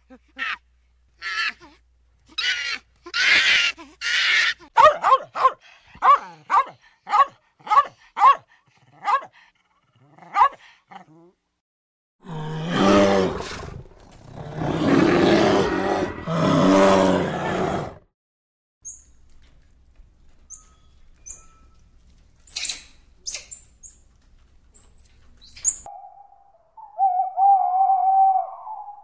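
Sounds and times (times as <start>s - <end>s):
polar bears growling: 12.2s - 18.0s.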